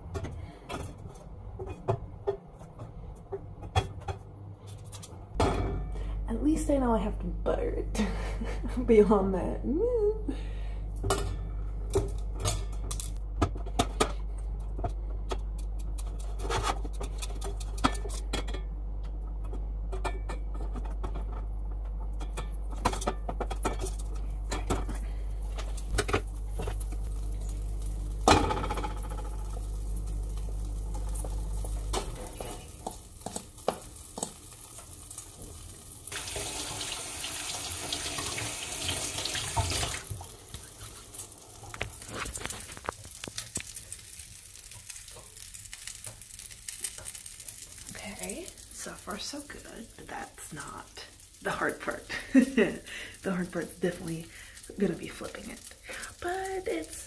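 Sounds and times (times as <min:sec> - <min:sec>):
steady low hum: 0:00.0 - 0:36.2
pan sizzling: 0:15.4 - 0:57.0.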